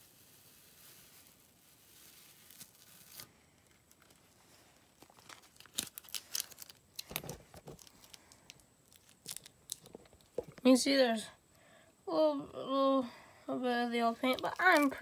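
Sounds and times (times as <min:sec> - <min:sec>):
tape tearing and crinkling: 0:00.0 - 0:10.6, 0:14.2 - 0:15.0.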